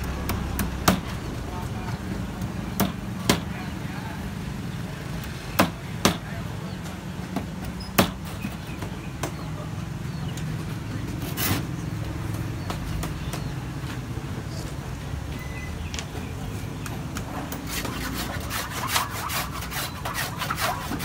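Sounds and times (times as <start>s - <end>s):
hammer driving nails into wood: 7.4s - 8.4s.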